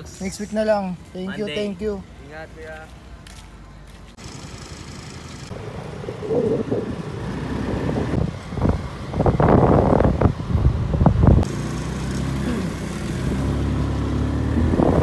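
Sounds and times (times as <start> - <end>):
road noise: 0.0 - 15.0
motorcycle engine rumble: 4.0 - 15.0
wind buffeting microphone: 5.5 - 11.5, 14.5 - 15.0.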